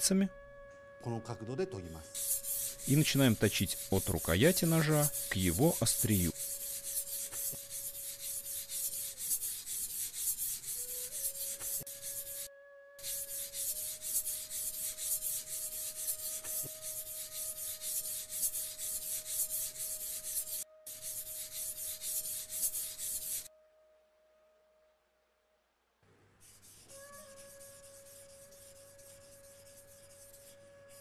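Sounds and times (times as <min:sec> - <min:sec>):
knife scraping on whetstone: 0:02.2 - 0:12.4.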